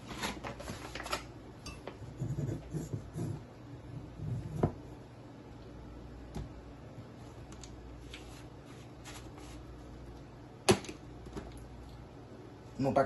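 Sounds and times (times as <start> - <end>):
soft rustling of containers: 7.0 - 10.3.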